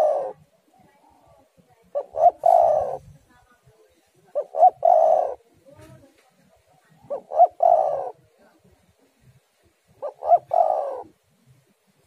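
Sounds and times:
dove cooing: 0:00.0 - 0:03.2, 0:04.3 - 0:06.0, 0:06.8 - 0:08.6, 0:09.9 - 0:11.2.

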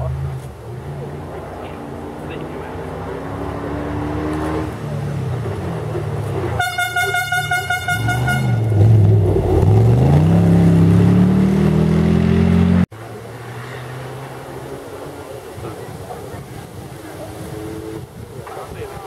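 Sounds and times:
rally car engine revving: 0:00.0 - 0:18.8
car horn: 0:06.6 - 0:09.0.

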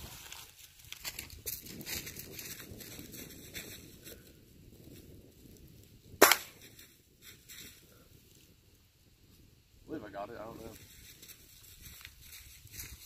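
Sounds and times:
rustling leaves: 0:00.0 - 0:13.0
pellet rifle firing: 0:06.2 - 0:06.6.

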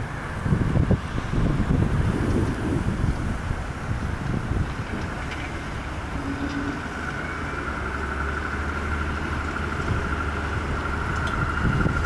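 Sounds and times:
propeller plane engine running: 0:00.0 - 0:12.0.

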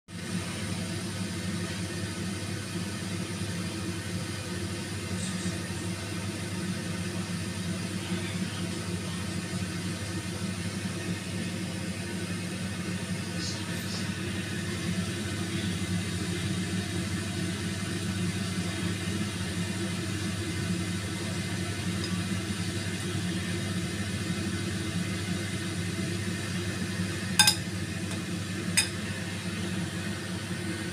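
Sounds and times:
low mechanical hum: 0:00.1 - 0:30.9
metal spoon clinking on plate: 0:27.4 - 0:27.6, 0:28.8 - 0:29.0.

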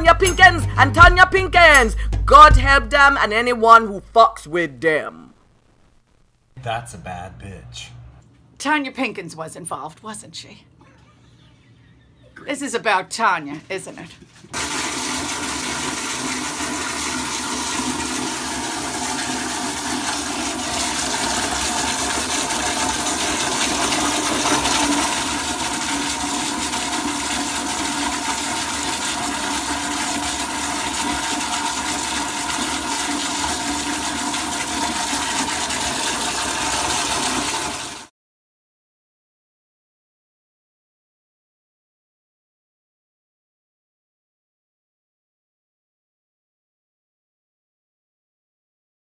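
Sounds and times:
toilet flushing: 0:14.5 - 0:38.1.

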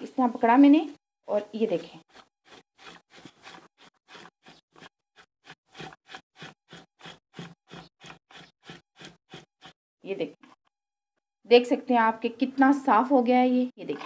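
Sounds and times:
knife scraping raw tripe: 0:01.7 - 0:09.8.

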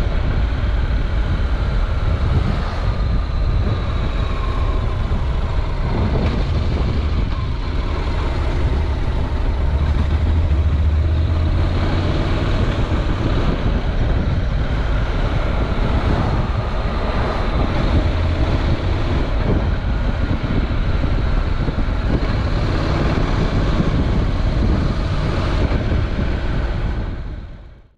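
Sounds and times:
motorcycle engine running: 0:00.0 - 0:27.8
wind noise on microphone: 0:00.0 - 0:27.9.

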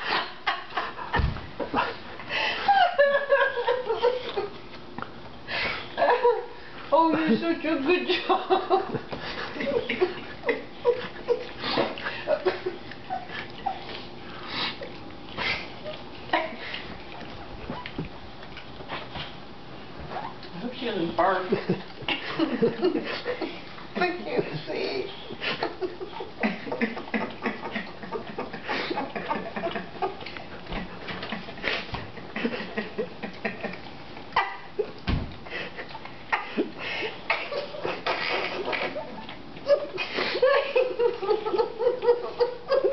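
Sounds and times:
dog licking and slurping: 0:08.9 - 0:40.4
dog licking: 0:09.0 - 0:19.5.

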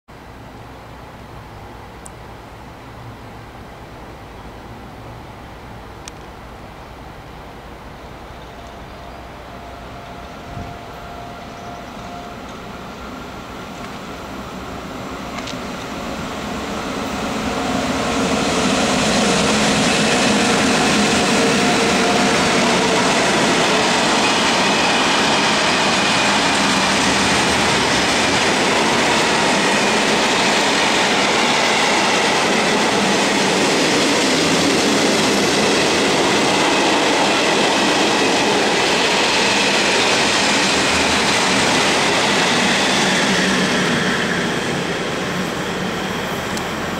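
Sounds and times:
freight train passing: 0:00.2 - 0:46.9.

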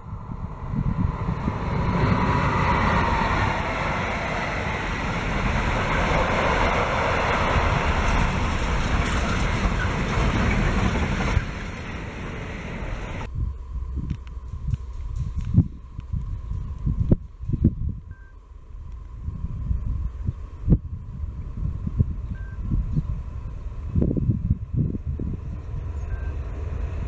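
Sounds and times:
diesel locomotive passing: 0:00.0 - 0:16.6, 0:23.2 - 0:27.0
train wheels rumbling: 0:00.0 - 0:17.6, 0:23.6 - 0:27.0.

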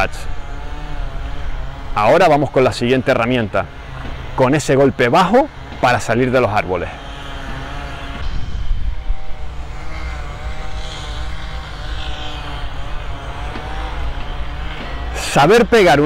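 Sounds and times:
engine droning: 0:00.0 - 0:16.0
faint wavering whine: 0:08.1 - 0:13.4.

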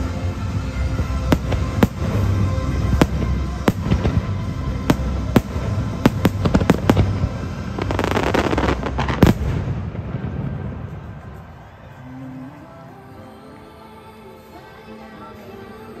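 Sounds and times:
fireworks bangs: 0:00.9 - 0:11.8.

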